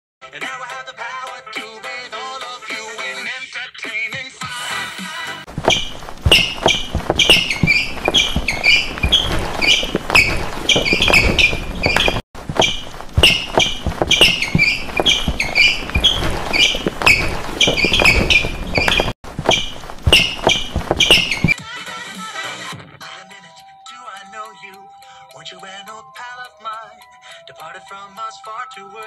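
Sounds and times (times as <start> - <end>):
rhythmic thumps and taps: 5.5 - 21.6
short high squeaks: 5.6 - 21.6.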